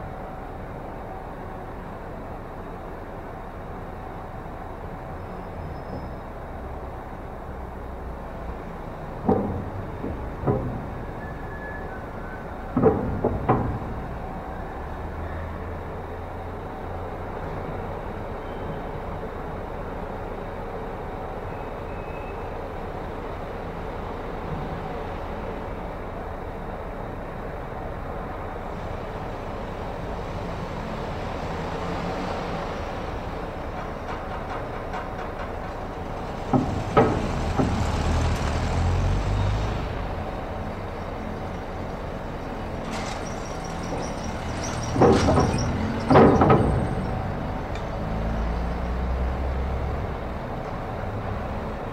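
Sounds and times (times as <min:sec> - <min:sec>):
ship engines rumbling: 0:00.0 - 0:51.9
loud clanks and thuds: 0:08.6 - 0:14.5, 0:33.1 - 0:39.1, 0:42.4 - 0:48.6.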